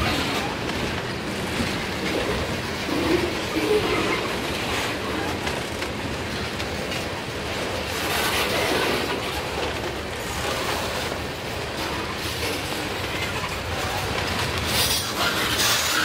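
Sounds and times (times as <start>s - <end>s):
train wheels rumbling on rails: 0.0s - 16.0s
wheels clicking over rail joints: 0.0s - 16.0s.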